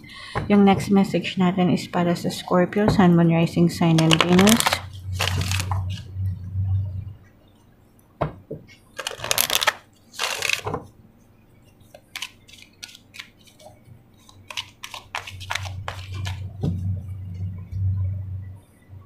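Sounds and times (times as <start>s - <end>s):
cards riffling: 4.0s - 6.0s, 9.0s - 10.8s, 12.0s - 16.4s.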